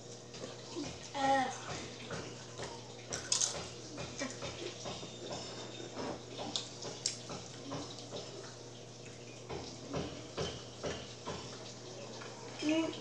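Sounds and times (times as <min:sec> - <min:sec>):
chips crunching in bowls: 0:03.2 - 0:03.6.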